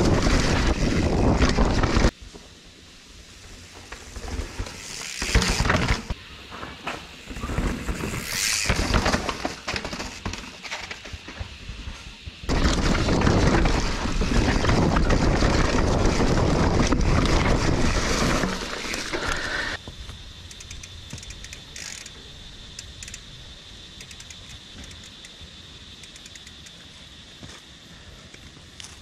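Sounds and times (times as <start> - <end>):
bike rattling over rock: 0.0 - 2.1, 3.8 - 11.7, 12.5 - 19.8
scattered clicks: 20.1 - 23.3, 24.0 - 25.4, 26.0 - 26.8.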